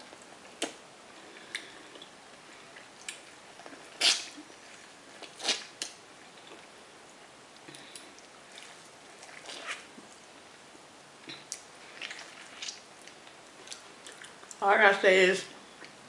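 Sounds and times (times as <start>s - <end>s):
person chewing corn: 0.0s - 6.8s, 11.2s - 14.6s.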